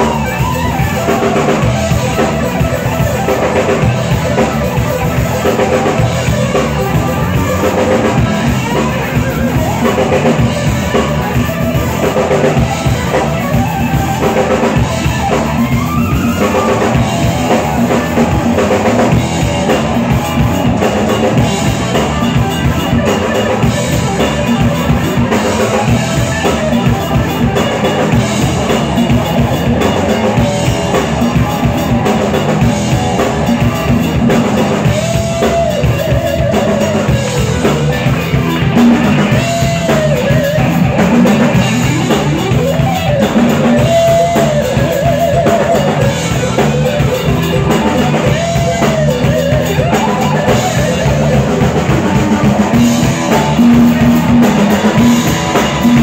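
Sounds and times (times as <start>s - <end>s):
drum kit beat: 0.0s - 56.0s
electric guitar: 0.0s - 56.0s
keyboard: 0.0s - 56.0s
lead line with bending notes: 0.0s - 56.0s.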